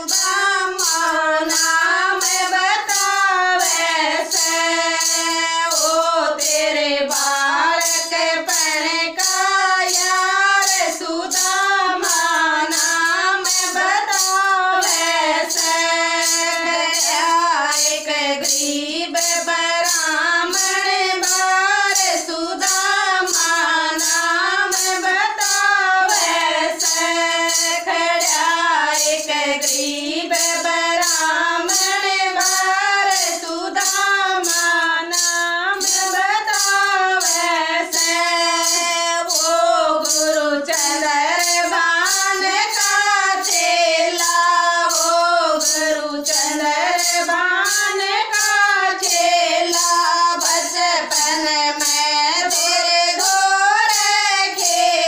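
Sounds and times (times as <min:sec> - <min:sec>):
clapped and shaken beat: 0:00.0 - 0:55.0
women singing devotional song: 0:00.0 - 0:55.0.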